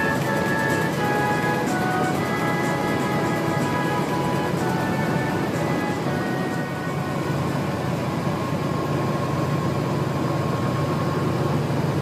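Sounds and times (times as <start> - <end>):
faint music: 0.0 - 9.5.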